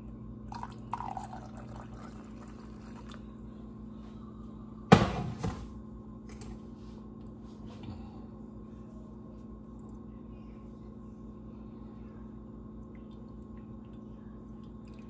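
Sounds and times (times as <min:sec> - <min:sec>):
steady hum: 0:00.0 - 0:15.0
liquid trickling and dripping: 0:12.8 - 0:15.0.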